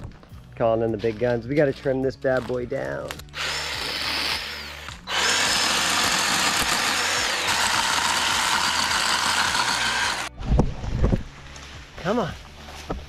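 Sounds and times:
electric chainsaw cutting wood: 3.2 - 10.4.

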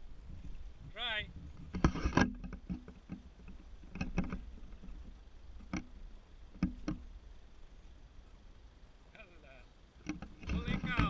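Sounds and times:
knocks and clunks: 1.5 - 7.0, 10.0 - 11.0.

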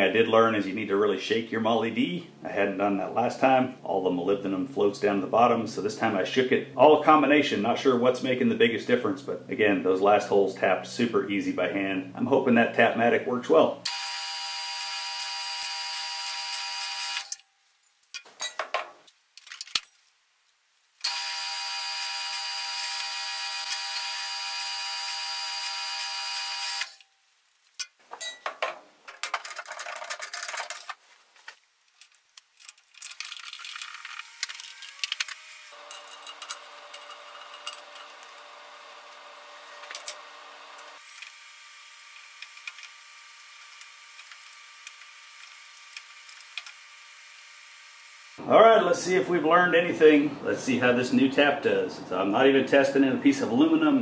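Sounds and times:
drill press drilling: 13.9 - 17.4, 21.0 - 27.0, 34.3 - 47.5.

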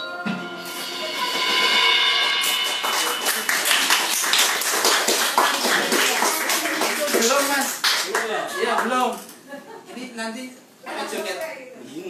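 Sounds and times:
band song ringing out: 0.0 - 5.8
small group clapping: 2.9 - 9.3.

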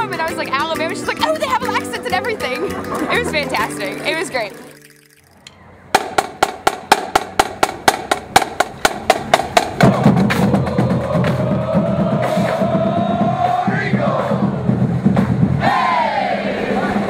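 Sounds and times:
marching band with drums and brass: 5.9 - 17.0.

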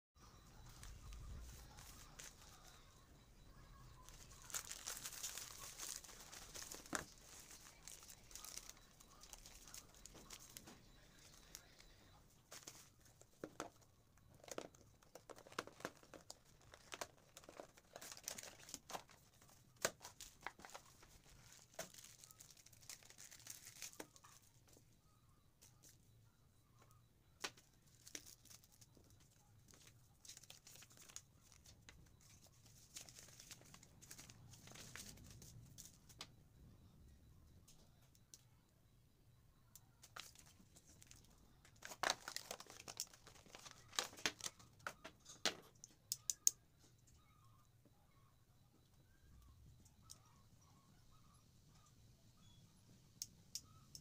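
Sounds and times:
packaging crinkling and rustling: 0.6 - 2.7, 4.0 - 11.9, 14.4 - 24.5, 27.4 - 36.2, 40.0 - 45.6.

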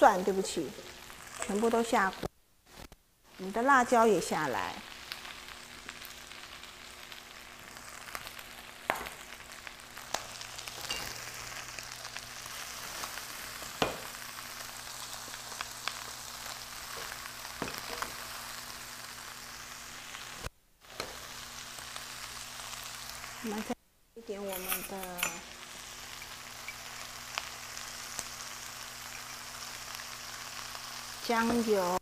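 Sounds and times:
vegetables sizzling in hot oil: 0.0 - 32.0
wooden spatula knocking on pan: 13.8 - 14.1.

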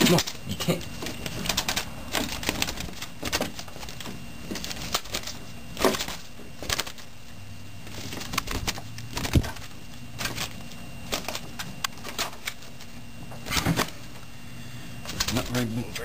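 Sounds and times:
wing rustles: 0.0 - 15.6.

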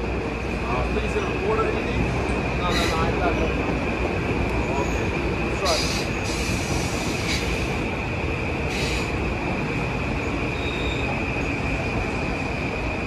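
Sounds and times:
train running on rails: 0.0 - 13.0
high-pitched wheel squeal: 10.5 - 11.2.

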